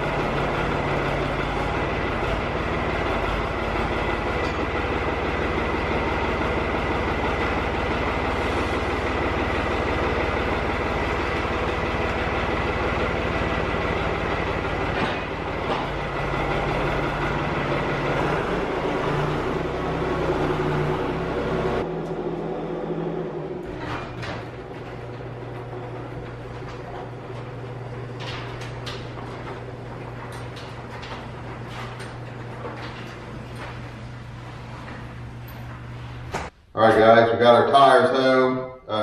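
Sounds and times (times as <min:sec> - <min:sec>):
tractor engine running: 0:00.0 - 0:36.6.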